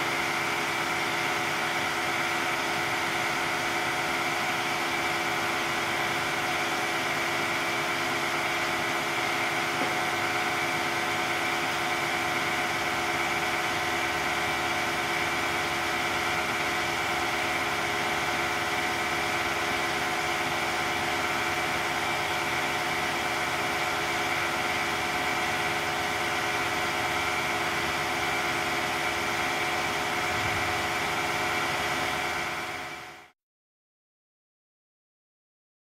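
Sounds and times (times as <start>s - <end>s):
press machinery humming: 5.7s - 32.9s.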